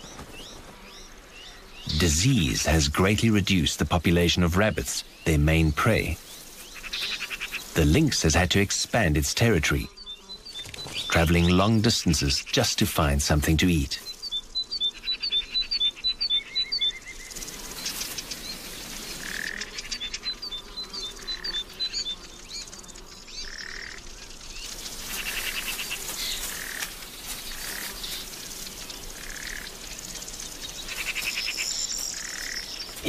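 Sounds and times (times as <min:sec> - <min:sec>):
steady outdoor hiss: 0:00.0 - 0:33.0
rapid high bird chirps: 0:09.8 - 0:33.0.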